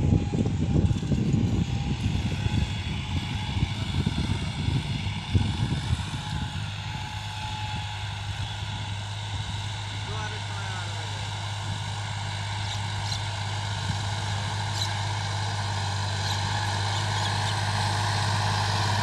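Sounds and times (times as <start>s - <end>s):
wind buffeting on microphone: 0.0s - 9.7s
tractor diesel engine droning: 0.0s - 19.0s.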